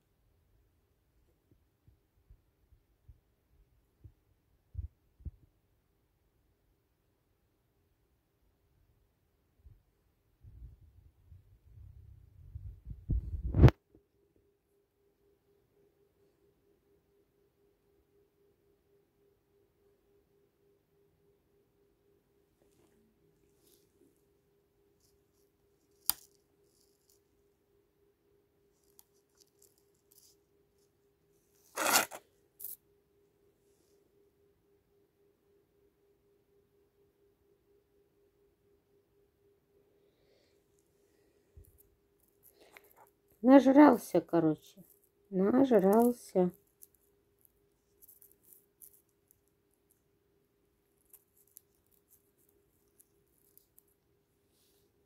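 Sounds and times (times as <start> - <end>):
faint steady hum: 0.0 - 55.0
brief rustle: 31.6 - 32.8.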